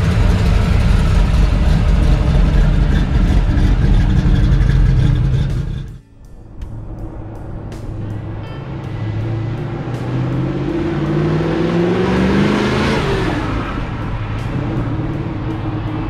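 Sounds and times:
car engine accelerating past: 6.9s - 16.0s.

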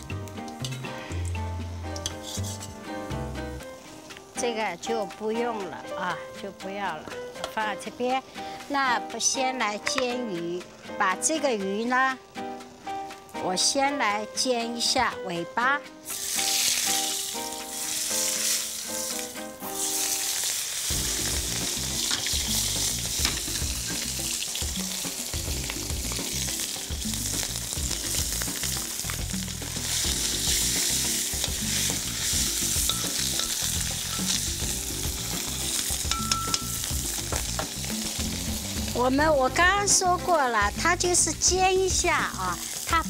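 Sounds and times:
fish sizzling in oil: 16.0s - 43.0s.

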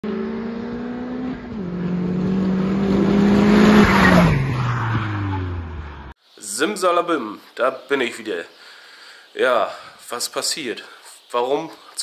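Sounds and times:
car engine driving past: 0.0s - 6.1s.

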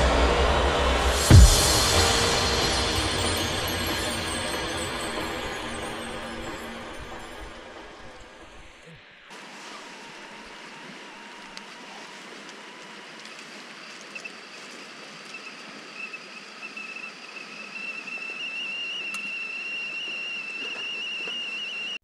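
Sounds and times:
kettle whistling: 16.0s - 22.0s.

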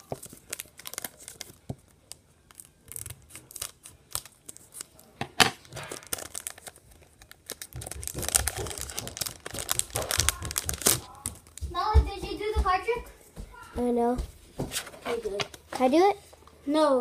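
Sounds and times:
foil pack crinkling: 0.0s - 11.6s
foil pack ripping: 0.0s - 11.6s.

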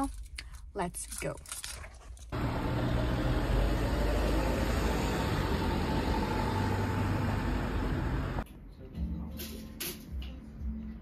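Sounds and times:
road traffic noise: 2.3s - 10.1s.

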